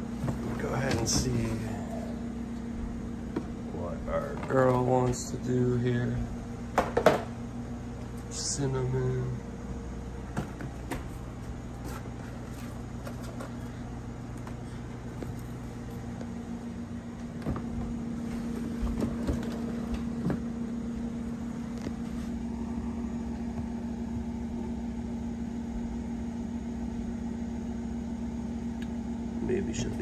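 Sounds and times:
low machine hum: 0:00.0 - 0:30.0.

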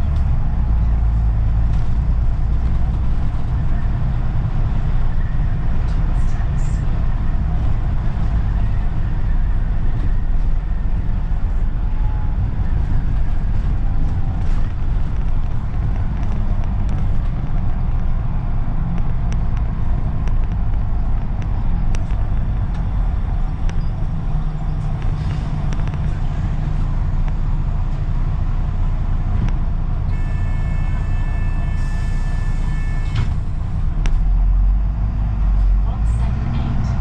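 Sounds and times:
bus engine and road noise: 0:00.0 - 0:37.0.

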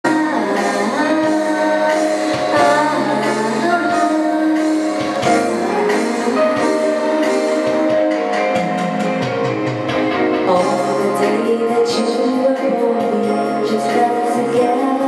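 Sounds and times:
woman singing into microphone: 0:00.0 - 0:08.0, 0:10.4 - 0:15.0
instrumental backing track: 0:00.0 - 0:15.0.

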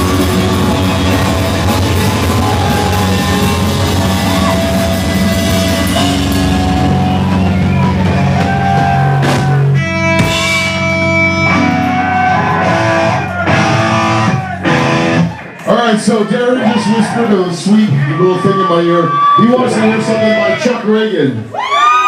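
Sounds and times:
drum kit: 0:00.0 - 0:15.4
electric bass: 0:00.0 - 0:15.5
distorted electric guitar: 0:00.0 - 0:15.7
punk rock band playing: 0:00.0 - 0:20.2.

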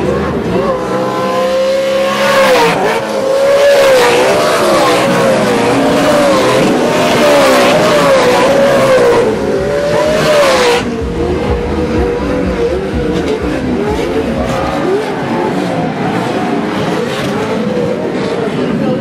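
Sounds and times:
race truck engines revving: 0:00.0 - 0:19.0
low rumble: 0:08.3 - 0:16.0.

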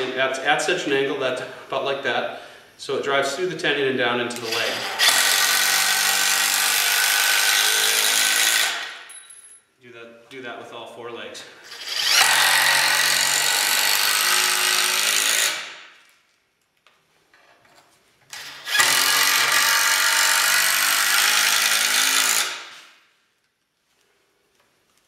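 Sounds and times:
cordless drill driving screws: 0:04.4 - 0:09.0, 0:11.7 - 0:15.8, 0:18.3 - 0:22.8.

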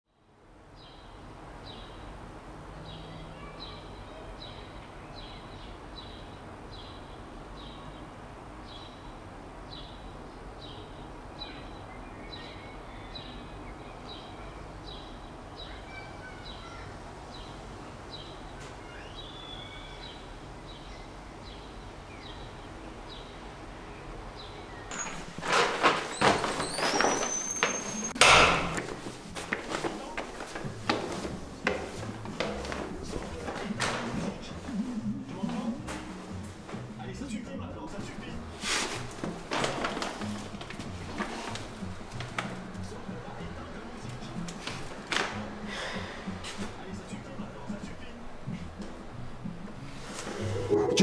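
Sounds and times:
other bird calls: 0:50.2 - 0:51.0.

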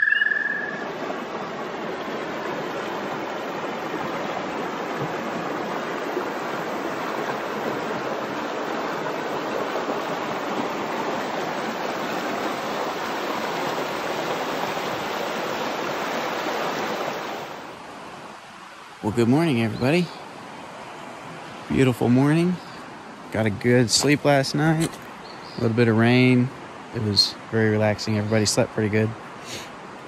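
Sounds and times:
creek water rushing: 0:00.0 - 0:30.0.

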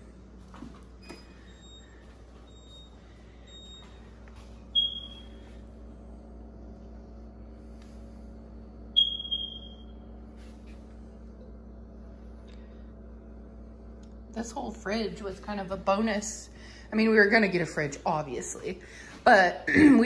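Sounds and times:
refrigerator humming: 0:00.0 - 0:20.0
refrigerator panel beeps: 0:04.7 - 0:05.4, 0:09.0 - 0:10.0.

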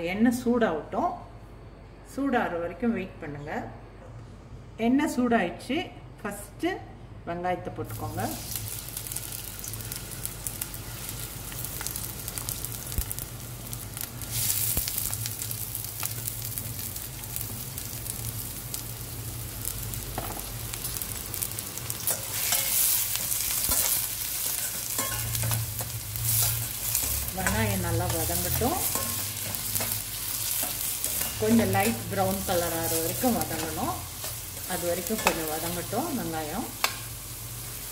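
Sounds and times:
onions sizzling in oil: 0:07.9 - 0:37.9.

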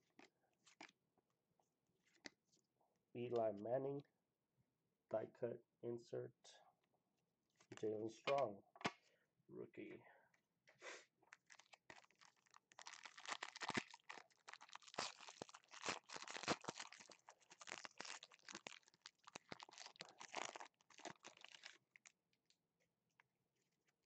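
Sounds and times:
foil pack tearing and crinkling: 0:11.3 - 0:22.0.

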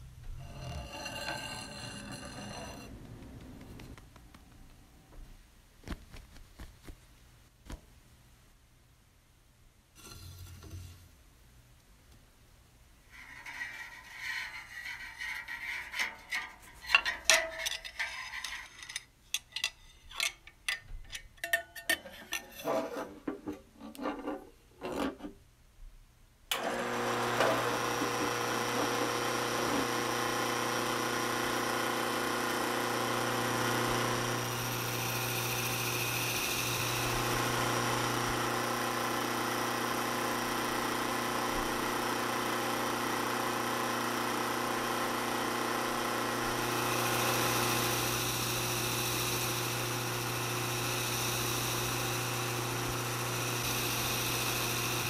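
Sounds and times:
tools clicking and knocking: 0:16.1 - 0:25.3
drill press motor hum: 0:26.5 - 0:55.0.

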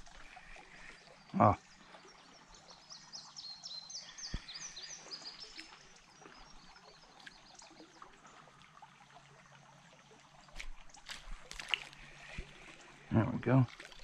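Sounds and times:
creek water trickling: 0:00.0 - 0:14.0.

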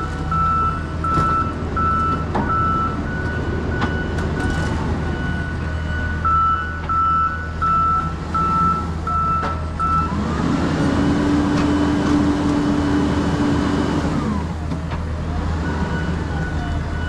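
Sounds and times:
diesel engine drone: 0:00.0 - 0:17.0
backup alarm beeping: 0:00.3 - 0:10.1.

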